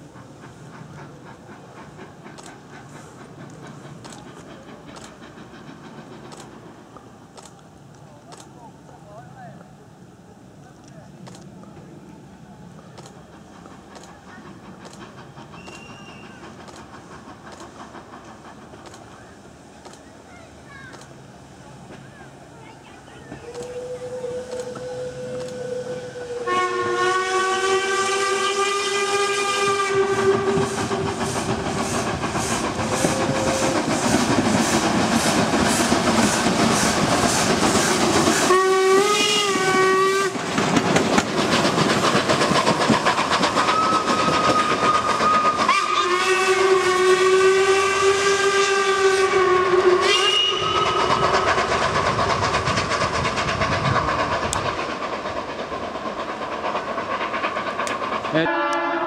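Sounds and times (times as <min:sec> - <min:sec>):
steam locomotive exhaust chuffs: 0:00.0 - 0:08.9, 0:09.7 - 0:59.0
steam locomotive whistle blasts: 0:23.5 - 0:31.1, 0:38.4 - 0:40.4, 0:43.7 - 0:51.3, 0:58.4 - 0:59.0.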